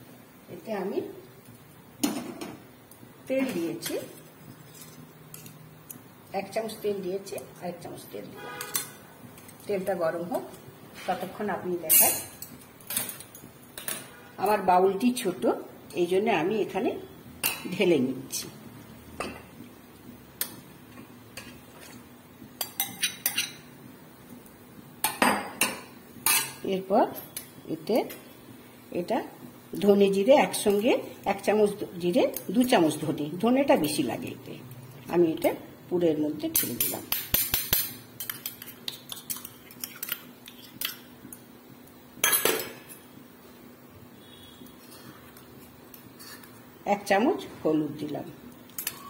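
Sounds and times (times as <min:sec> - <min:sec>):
spoons clinking in metal bowl: 0:36.6 - 0:41.0.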